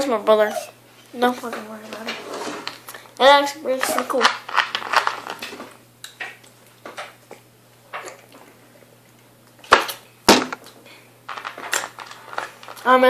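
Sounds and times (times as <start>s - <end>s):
plastic bottle knocks: 10.3s - 10.6s.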